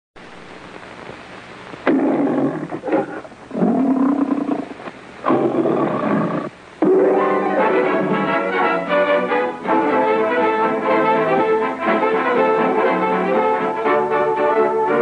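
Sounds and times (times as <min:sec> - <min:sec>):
faint film hiss: 0:00.2 - 0:15.0
lion roaring: 0:01.9 - 0:07.1.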